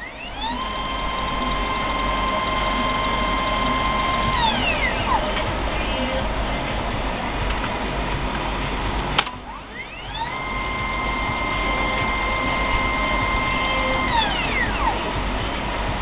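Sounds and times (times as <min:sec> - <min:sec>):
stepper motor whine: 0:00.0 - 0:06.4, 0:09.4 - 0:16.0
sharp click: 0:09.2 - 0:09.4.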